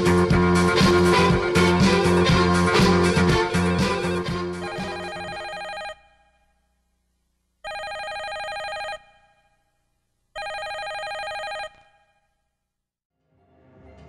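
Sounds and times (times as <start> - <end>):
telephone ringing: 4.6 - 6.5, 7.6 - 9.7, 10.4 - 12.3.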